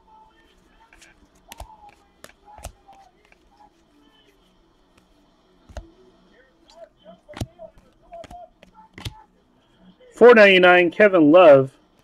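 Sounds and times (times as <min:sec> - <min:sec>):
faint background music: 0:00.0 - 0:12.0
cards being flipped: 0:00.7 - 0:06.0, 0:06.7 - 0:09.3
card tapping on card: 0:00.8 - 0:03.6, 0:04.9 - 0:06.0, 0:07.3 - 0:09.2.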